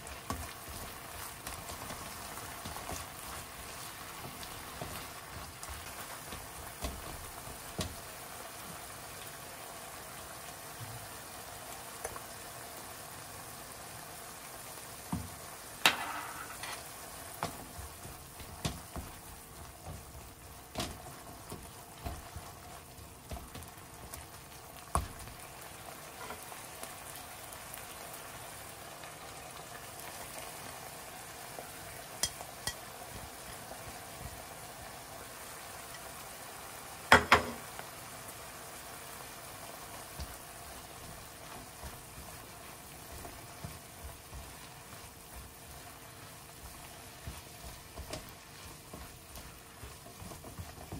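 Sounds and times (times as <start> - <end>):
meat sizzling in a pan: 0.0 - 50.9
spatula knocking and scraping pan: 0.1 - 8.1, 15.1 - 23.8, 26.1 - 26.5, 32.2 - 33.6, 37.1 - 37.7, 41.0 - 45.7, 46.6 - 50.9.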